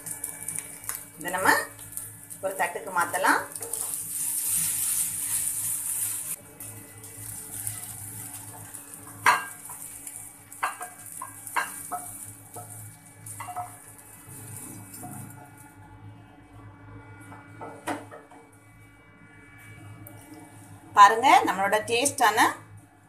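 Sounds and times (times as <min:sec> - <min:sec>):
noodles sizzling in a pan: 0:00.0 - 0:16.0
wooden spatula scraping a pan: 0:03.5 - 0:06.4.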